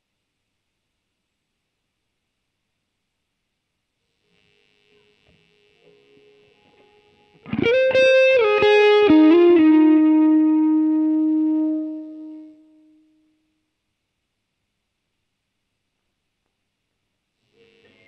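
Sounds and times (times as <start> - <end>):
faint hiss: 0.0 - 18.0
guitar string noise: 5.0 - 13.1
electric guitar lead: 5.8 - 13.2.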